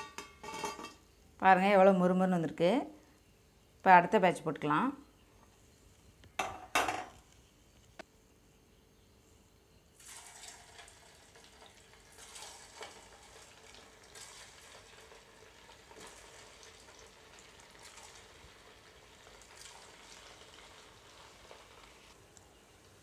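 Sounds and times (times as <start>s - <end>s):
food deep-frying in oil: 10.0s - 23.0s
oil crackling and popping: 10.0s - 23.0s.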